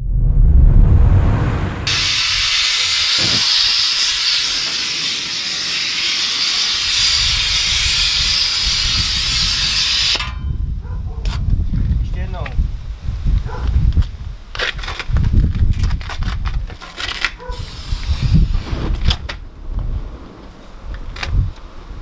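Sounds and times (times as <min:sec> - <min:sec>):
low rumble: 0:00.0 - 0:02.6
loud steady hiss of burning: 0:01.9 - 0:10.2, 0:17.5 - 0:22.0.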